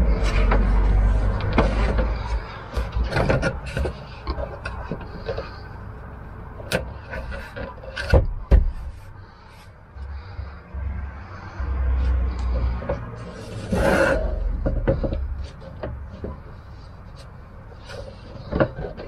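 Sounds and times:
floor plank knocking and scraping: 0:00.1 - 0:05.6, 0:06.7 - 0:09.0, 0:12.5 - 0:16.8, 0:17.8 - 0:19.0.

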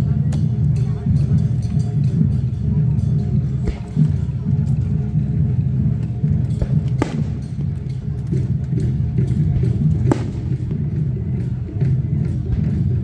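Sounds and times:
music: 0:00.0 - 0:13.0
low rumble of fireworks: 0:02.2 - 0:13.0
firework bangs: 0:07.0 - 0:07.7, 0:10.0 - 0:10.8.

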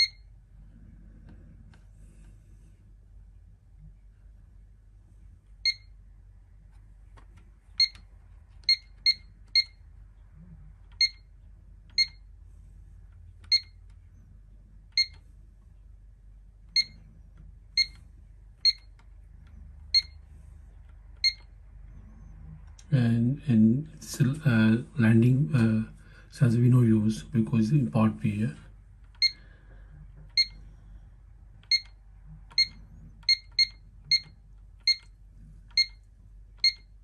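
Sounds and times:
alarm keypad beeping: 0:00.0 - 0:00.3, 0:07.8 - 0:08.0, 0:17.8 - 0:18.0, 0:21.2 - 0:21.5, 0:29.2 - 0:29.4, 0:30.3 - 0:30.6, 0:31.6 - 0:35.1, 0:36.6 - 0:36.9.

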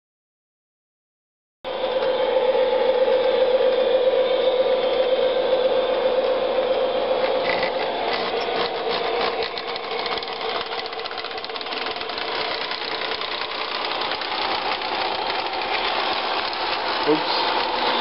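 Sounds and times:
model train motor running: 0:01.7 - 0:18.0
rapid clicks: 0:07.2 - 0:17.9.

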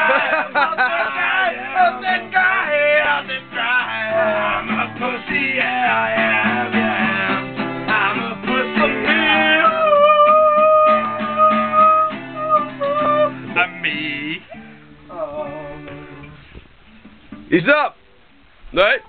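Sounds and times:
man singing: 0:00.0 - 0:16.4
acoustic guitar strumming: 0:00.0 - 0:19.0.

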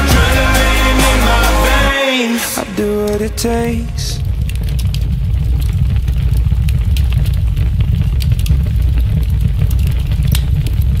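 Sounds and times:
scattered crackles: 0:02.1 - 0:11.0
deep steady rumble: 0:02.9 - 0:11.0.

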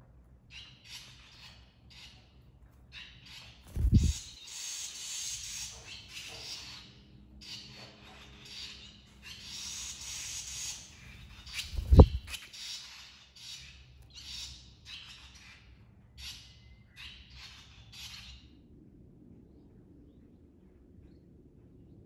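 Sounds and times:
nestlings chirping: 0:03.7 - 0:04.3, 0:11.5 - 0:12.4
sharp thump: 0:11.8 - 0:12.3.

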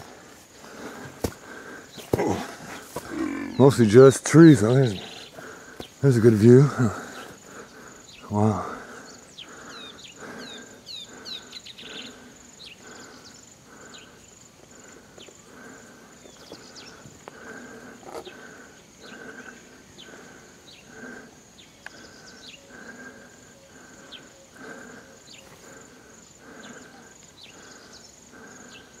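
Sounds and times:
insects droning: 0:00.0 - 0:29.0
bird chirps: 0:09.0 - 0:14.2.

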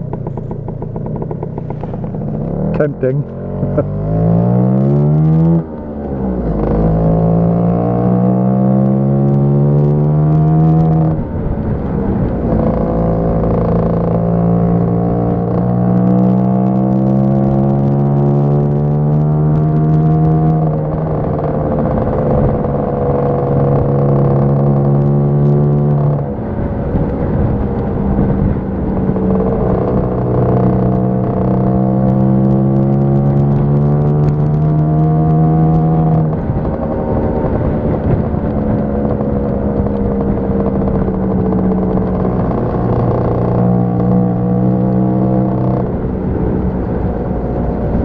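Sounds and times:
scooter engine running: 0:00.0 - 0:08.6, 0:19.8 - 0:48.0.

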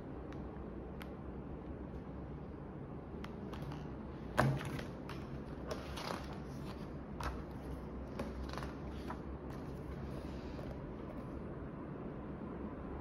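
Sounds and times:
pages rustling and tapping: 0:03.3 - 0:11.3.

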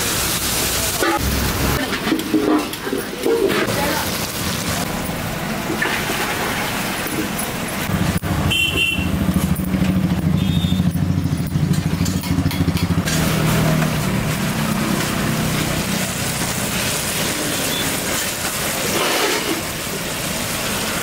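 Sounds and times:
motorcycle engine running: 0:07.9 - 0:16.0.

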